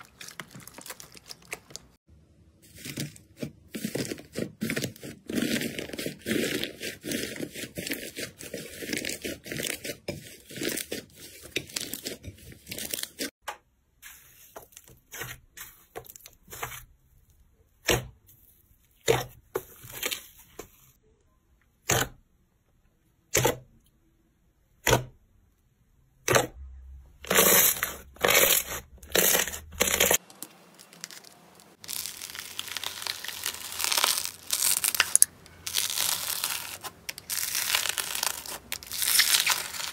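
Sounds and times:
slime crust crackling: 27.3s - 39.9s
beaded slime crackling: 29.2s - 39.9s.

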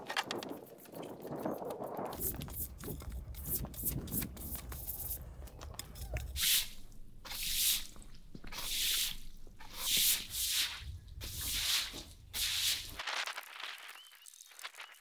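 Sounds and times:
deck brush scrubbing wet concrete: 6.2s - 13.0s.

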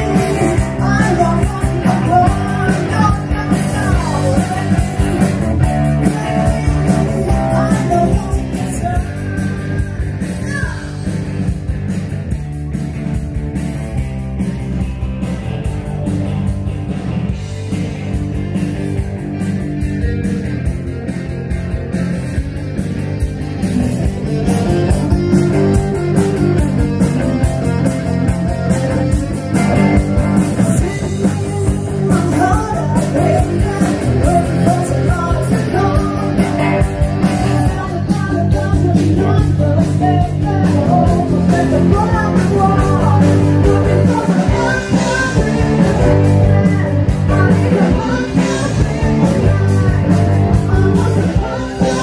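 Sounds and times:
person singing: 0.0s - 11.3s, 30.4s - 52.0s
rock band playing: 0.0s - 52.0s.

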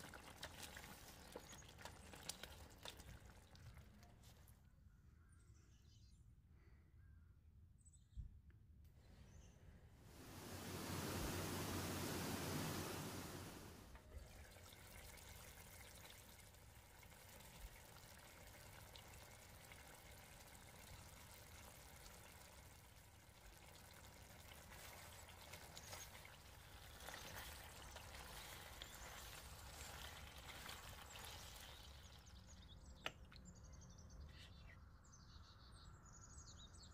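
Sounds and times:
faint background hiss: 9.0s - 14.0s
loud hiss: 10.1s - 13.9s.

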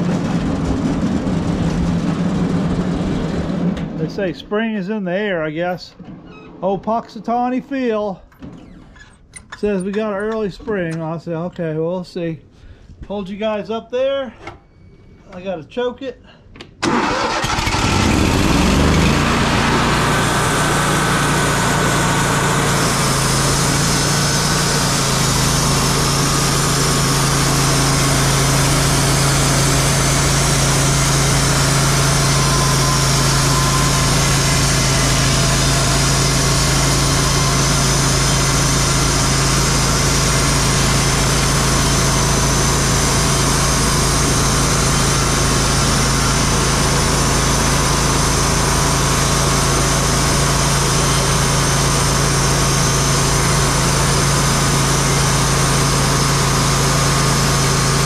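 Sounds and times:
engine hum: 0.0s - 4.5s, 16.8s - 58.0s
band sawmill cutting log: 16.8s - 58.0s.

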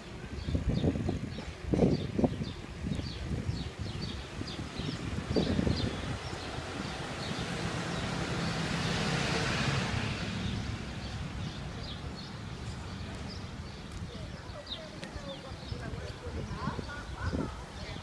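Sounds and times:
small birds chirping: 0.0s - 18.0s
vehicle passing: 4.4s - 13.7s.

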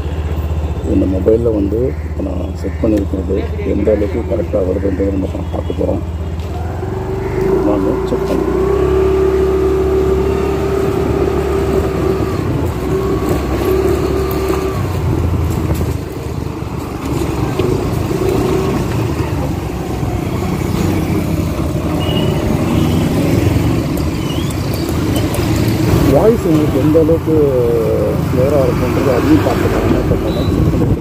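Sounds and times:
road and wind rumble: 0.0s - 31.0s
scooter engine running: 5.3s - 31.0s.

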